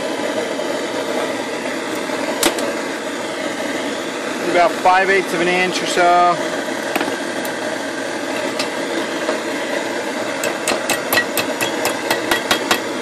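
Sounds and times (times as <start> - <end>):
propane torch hissing: 0.0 - 13.0
hammer striking a nail: 10.4 - 12.9.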